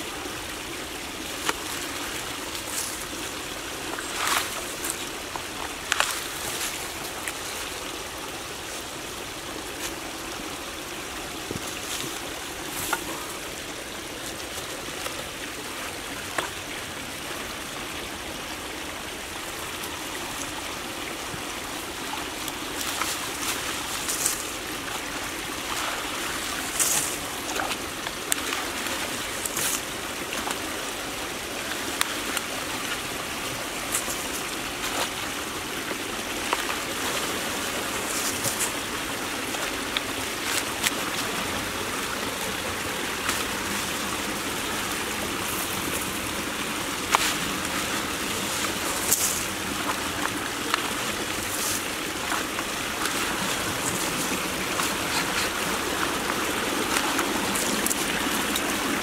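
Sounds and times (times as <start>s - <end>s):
water flowing through culvert: 0.0s - 59.0s
sharp water splashes: 21.8s - 59.0s.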